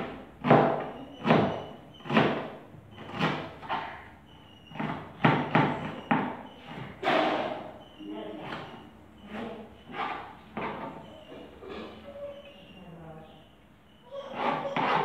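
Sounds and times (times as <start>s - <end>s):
knife chopping on cutting board: 0.0s - 4.0s.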